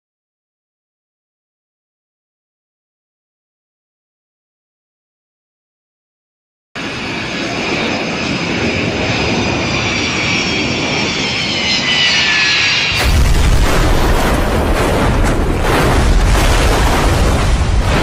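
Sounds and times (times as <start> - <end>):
jet engines whining: 6.8 - 18.0
deep crashing of airframe: 12.8 - 18.0.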